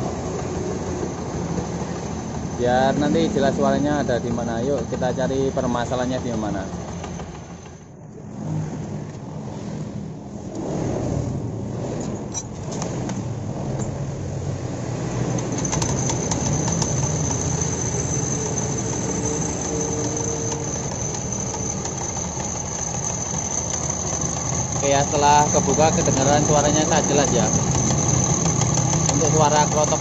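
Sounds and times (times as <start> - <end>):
scooter engine running: 15.4 - 30.0
jingling rattle: 15.5 - 30.0.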